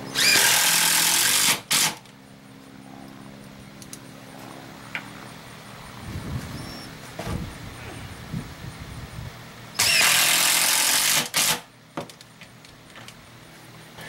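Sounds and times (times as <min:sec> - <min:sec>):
handheld power tool running: 0:00.1 - 0:02.0, 0:09.8 - 0:11.6.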